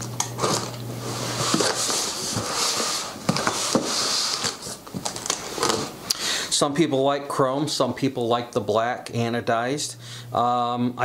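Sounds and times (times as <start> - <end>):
packing tape being cut: 0.2 - 5.9.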